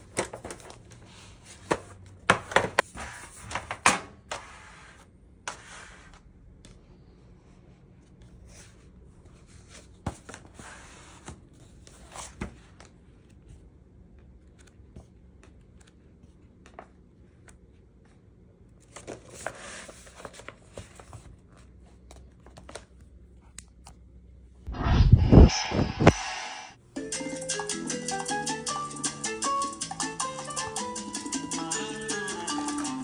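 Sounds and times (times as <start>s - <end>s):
paper pages rustling: 0.0s - 1.9s, 18.8s - 23.0s.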